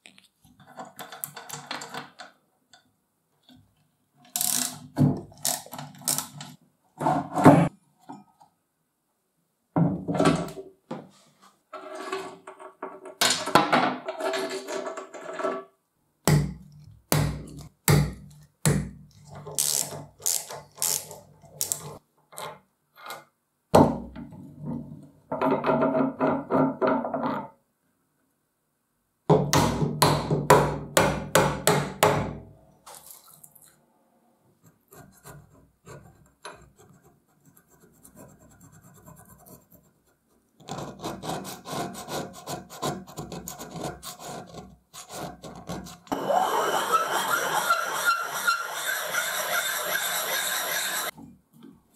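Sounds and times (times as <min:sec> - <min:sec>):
steel blade scraping metal: 0:46.7 - 0:51.1.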